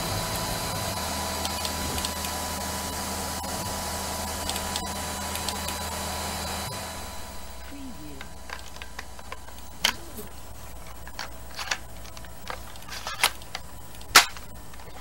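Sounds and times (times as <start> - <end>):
machine humming and hissing: 0.0 - 15.0
book pages turning: 8.3 - 15.0.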